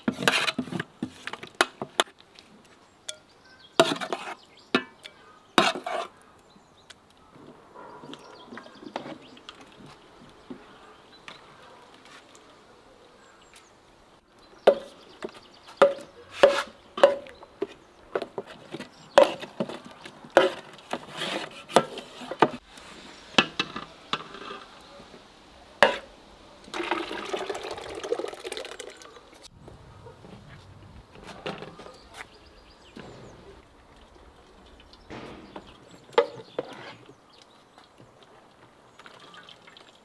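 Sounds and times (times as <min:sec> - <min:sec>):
juice pouring into pot: 0:26.7 - 0:29.4.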